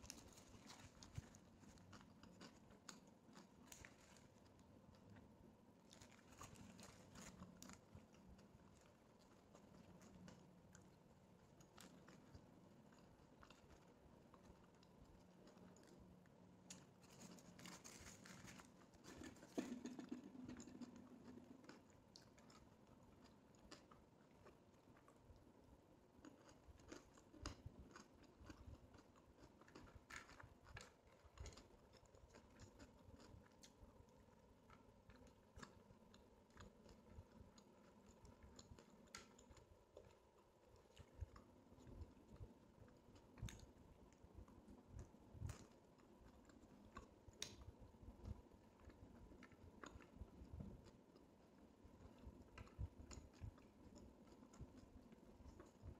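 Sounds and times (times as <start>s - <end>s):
chewing and mouth clicks: 0.0s - 55.9s
plastic bag crinkling: 17.0s - 19.9s.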